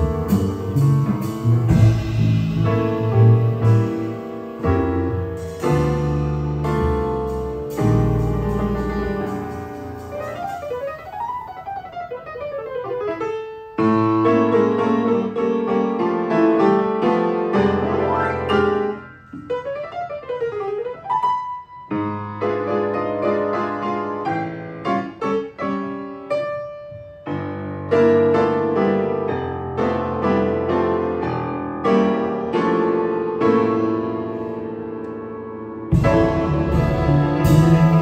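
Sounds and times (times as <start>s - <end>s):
plucked double bass: 0.0s - 11.2s, 35.9s - 38.0s
upright piano playing jazz: 0.0s - 38.0s.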